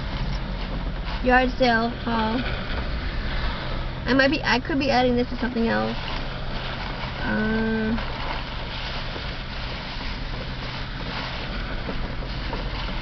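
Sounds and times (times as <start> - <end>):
heavy rain hiss: 0.0 - 13.0
low steady hum: 0.0 - 13.0
person humming: 7.2 - 8.0.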